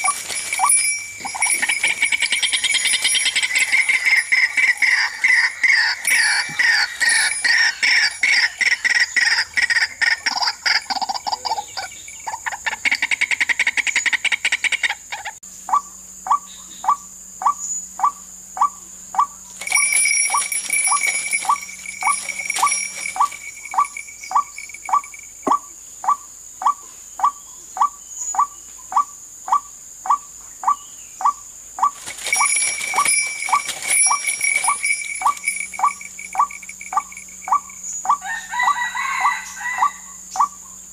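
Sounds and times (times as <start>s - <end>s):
bird harsh croaking calls: 0.0s - 40.8s
high buzzing: 19.5s - 25.6s, 31.9s - 38.2s
steady high whine: 31.9s - 38.2s.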